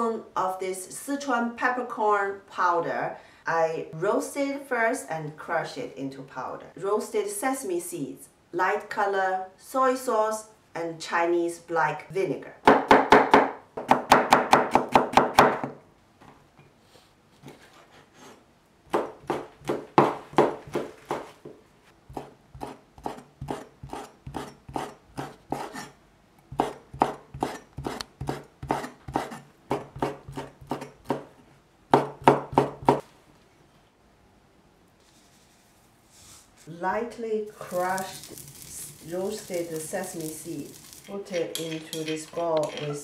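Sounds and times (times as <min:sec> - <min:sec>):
cleaver chopping on wooden board: 0:18.9 - 0:21.3, 0:31.9 - 0:33.0.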